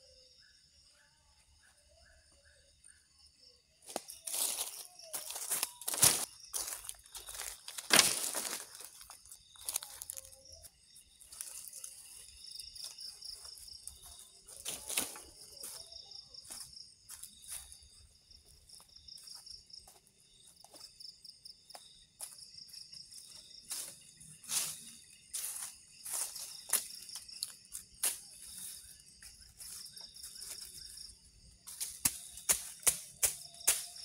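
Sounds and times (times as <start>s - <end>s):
insects chirping: 0.0s - 34.0s
dry leaves and twigs crunching: 3.8s - 20.9s, 21.8s - 34.0s.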